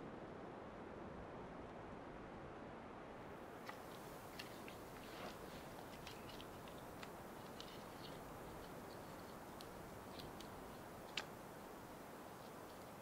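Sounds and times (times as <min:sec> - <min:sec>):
campfire crackling: 0:03.3 - 0:13.0.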